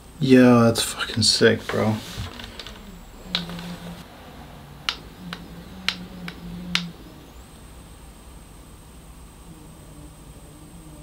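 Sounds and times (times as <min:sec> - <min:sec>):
faint low motor hum: 0:00.0 - 0:11.0
sharp clicks: 0:02.4 - 0:03.7.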